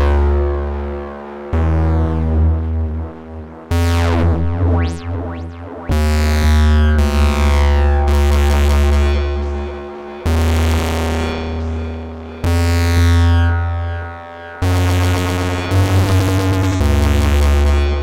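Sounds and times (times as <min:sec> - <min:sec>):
synthesizer bass notes: 0:00.0 - 0:18.0
bright synth sweeps: 0:03.7 - 0:16.6.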